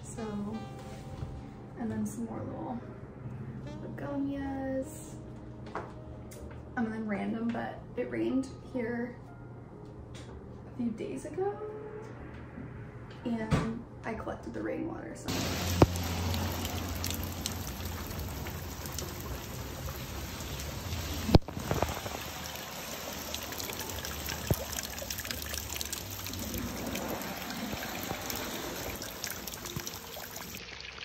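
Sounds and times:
rain water trickling and dripping: 15.3 - 31.0.

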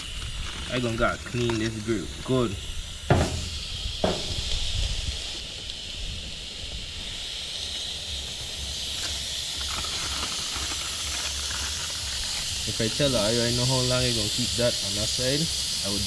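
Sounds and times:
fish sizzling on a grill: 0.0 - 16.0
fish knocking on grill grate: 3.1 - 4.6.

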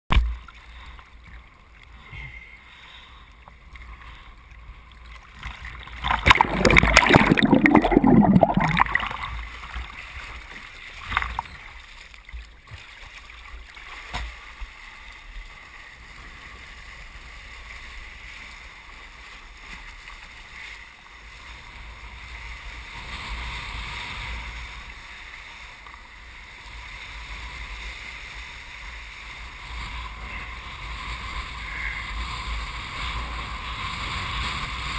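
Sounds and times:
water sloshing and splashing: 4.9 - 15.2
rush of water under board: 5.3 - 22.3.

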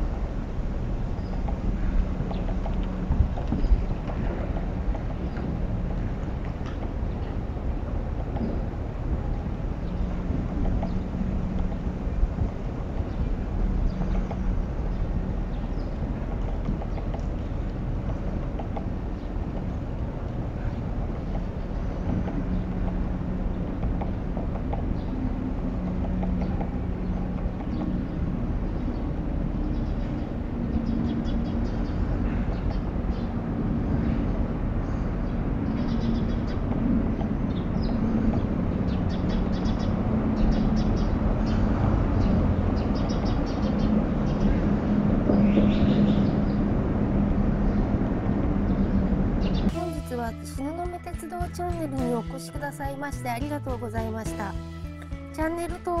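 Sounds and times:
wind rumble on microphone: 0.0 - 50.0
woodpecker tapping on tree: 1.2 - 7.3, 10.6 - 20.4, 25.8 - 28.2.

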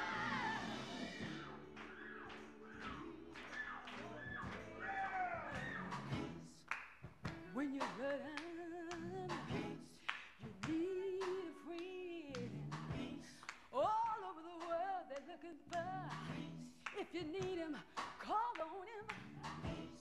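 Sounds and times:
rhythmic handclaps: 1.2 - 20.0
woman singing gospel: 7.4 - 20.0.

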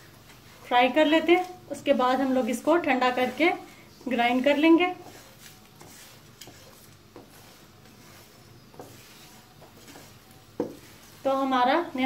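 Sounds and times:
spatula scraping spices in pan: 0.0 - 12.0
spatula knocking on pan: 8.7 - 11.0.

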